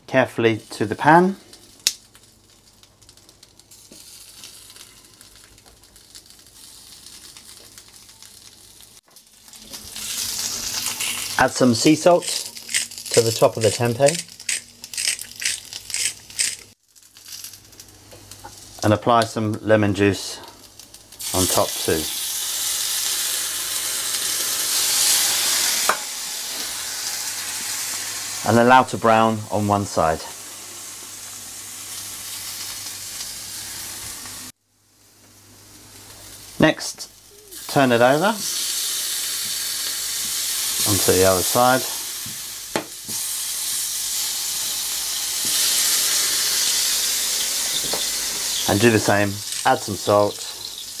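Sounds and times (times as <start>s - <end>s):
food sizzling on griddle pan: 1.1s - 18.8s, 20.6s - 51.0s
tongs clicking: 14.1s - 16.6s.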